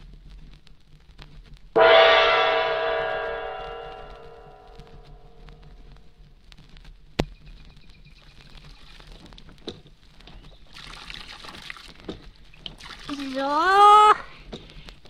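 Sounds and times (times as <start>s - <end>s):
water splashing into a barrel: 10.6s - 14.1s.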